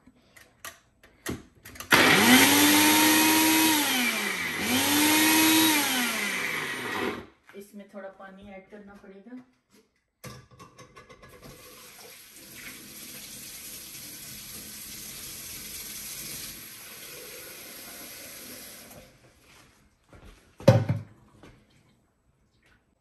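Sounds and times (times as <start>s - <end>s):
water running from tap: 11.4s - 19.2s.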